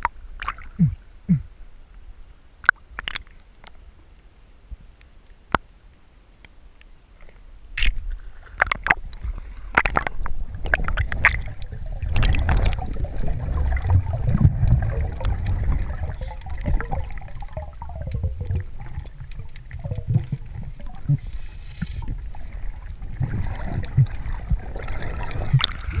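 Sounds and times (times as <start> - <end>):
water gurgling and sloshing: 0.0 - 1.8, 7.2 - 26.0.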